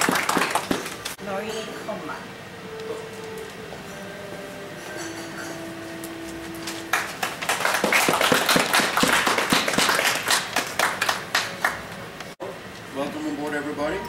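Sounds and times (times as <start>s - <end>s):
audience applause: 0.0s - 1.1s, 6.8s - 11.9s
faint steady hum: 0.0s - 14.0s.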